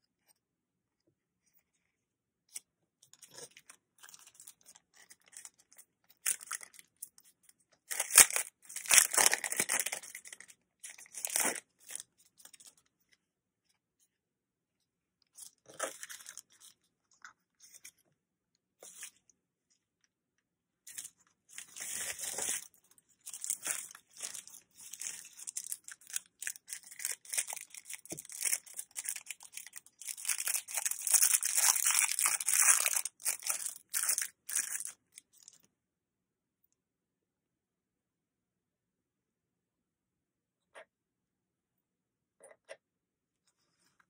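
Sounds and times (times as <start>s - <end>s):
plastic packaging crinkling: 7.9s - 12.7s, 21.0s - 35.6s.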